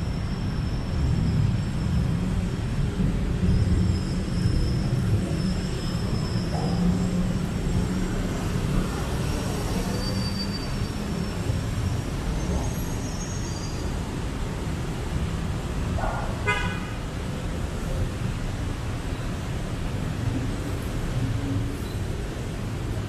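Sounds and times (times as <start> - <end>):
road traffic rumble: 0.0 - 23.0
vehicle horn toot: 16.4 - 17.0.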